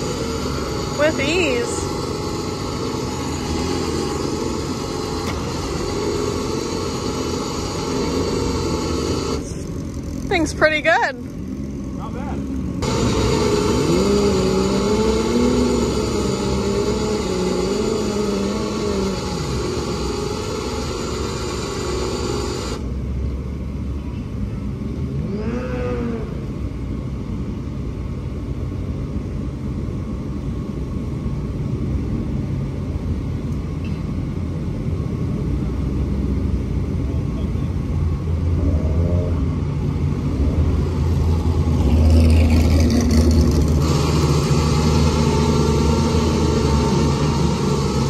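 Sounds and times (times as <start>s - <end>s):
electric winch whining under load: 0.0s - 23.1s, 39.4s - 48.0s.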